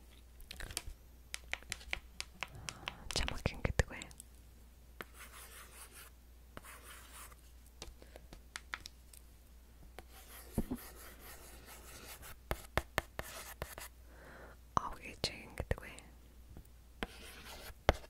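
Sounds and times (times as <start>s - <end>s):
pen scratching on paper: 5.0s - 7.4s, 10.0s - 13.9s, 17.0s - 18.0s.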